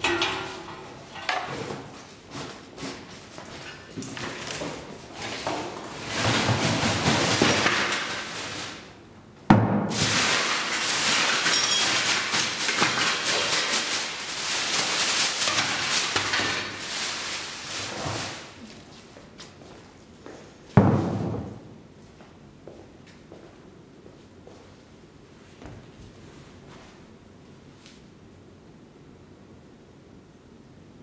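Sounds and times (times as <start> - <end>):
rubbish rustling and scattering: 0.0 - 9.0, 9.9 - 19.1.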